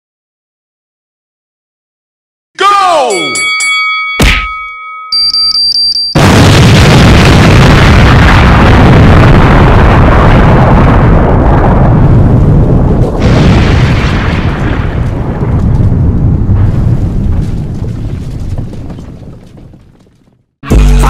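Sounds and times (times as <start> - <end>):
explosion with heavy rumble: 6.2 - 20.4.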